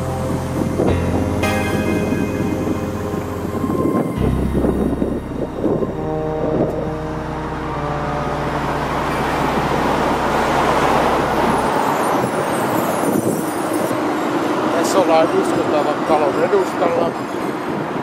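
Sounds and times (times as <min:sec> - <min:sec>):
steady low hum: 0:00.0 - 0:12.4
vehicle passing close: 0:00.0 - 0:17.0.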